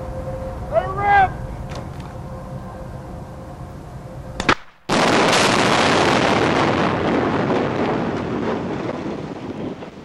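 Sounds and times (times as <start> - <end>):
loud explosive blast: 4.4 - 10.0.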